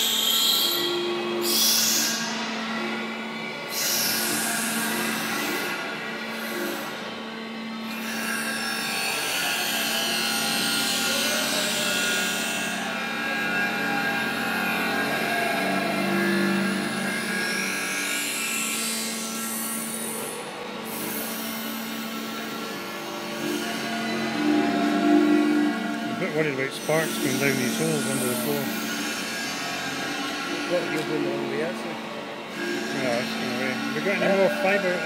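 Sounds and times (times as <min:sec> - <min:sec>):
disc grinder grinding metal: 0:07.9 - 0:35.0.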